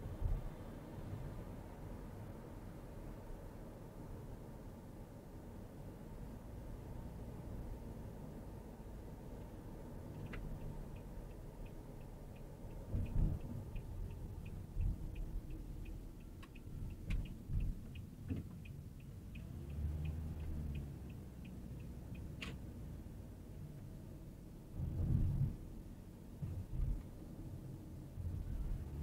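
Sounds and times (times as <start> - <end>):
car driving rumble: 5.7 - 29.0
turn signal ticking: 7.2 - 24.6, 26.4 - 29.0.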